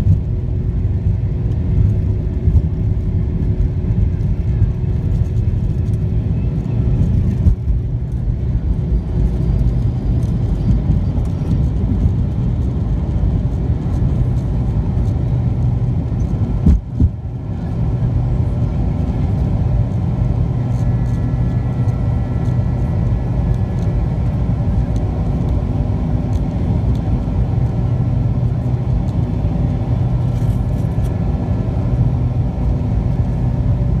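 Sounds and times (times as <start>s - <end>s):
jet engines roaring: 0.0s - 34.0s.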